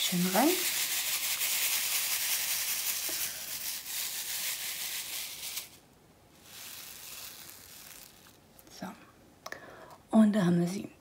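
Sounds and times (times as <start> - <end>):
plastic beads rattling in tray: 0.0 - 5.8, 6.4 - 8.4.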